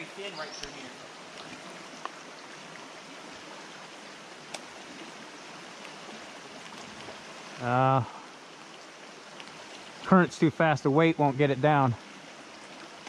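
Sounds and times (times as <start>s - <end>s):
stream rushing: 0.0s - 13.0s
faint ticks: 1.4s - 2.2s, 8.6s - 10.0s.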